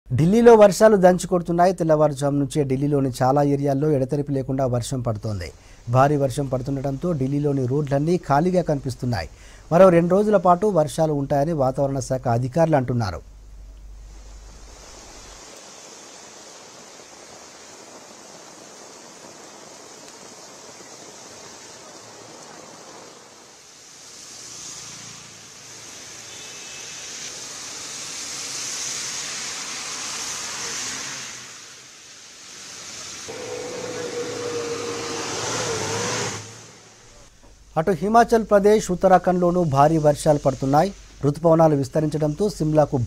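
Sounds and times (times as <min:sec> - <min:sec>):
heavy rain on road: 0:14.5 - 0:37.4
steady held tone: 0:33.3 - 0:37.3.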